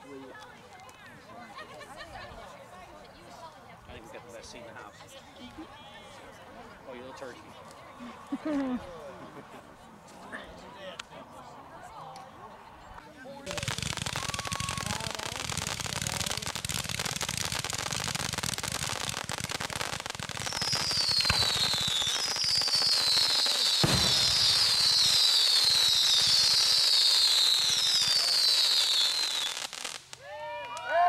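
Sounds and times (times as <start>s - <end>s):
fireworks crackling: 13.4s - 30.4s
whistling fireworks: 13.5s - 30.3s
heavy bangs: 23.8s - 24.5s.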